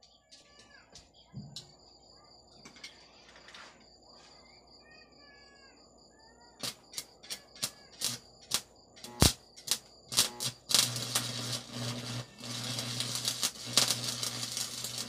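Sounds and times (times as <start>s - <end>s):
welding arc crackles: 6.6s - 15.0s
faint high whine: 9.0s - 15.0s.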